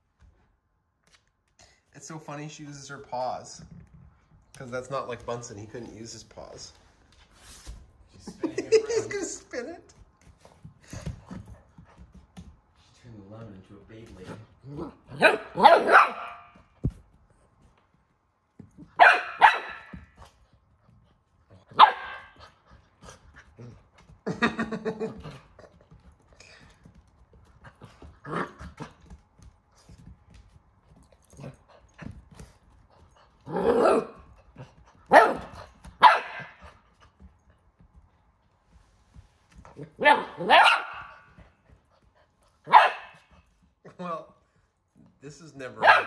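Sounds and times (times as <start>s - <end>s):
puppy barking: 15.1s - 16.6s, 18.9s - 20.0s, 21.7s - 22.4s, 33.5s - 34.2s, 35.1s - 36.7s, 40.0s - 41.3s, 42.7s - 43.3s, 45.8s - 46.0s.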